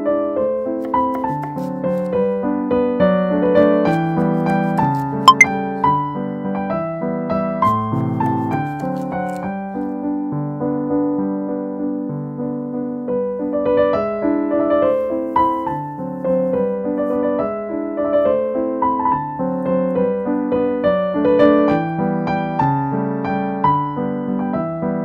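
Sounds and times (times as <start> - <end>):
piano music: 0.0 - 6.2.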